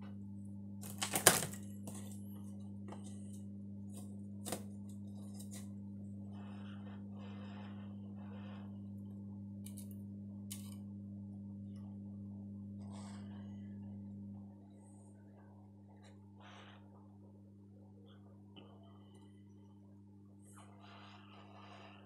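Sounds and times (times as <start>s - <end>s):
steady low hum: 0.0s - 22.0s
tools and cables clicking: 0.8s - 2.2s, 9.7s - 10.8s.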